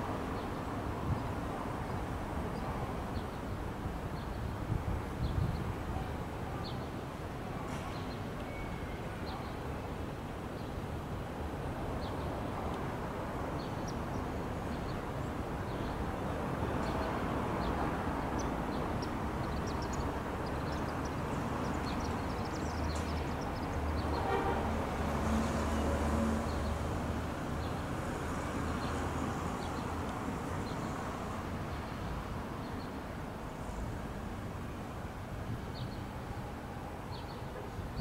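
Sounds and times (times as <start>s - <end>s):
distant traffic rumble: 0.0s - 38.0s.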